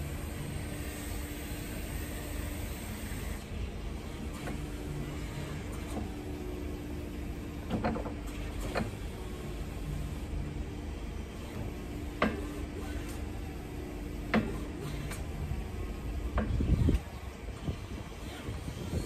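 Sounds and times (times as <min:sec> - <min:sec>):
hydraulic pump motor humming: 0:00.0 - 0:19.0.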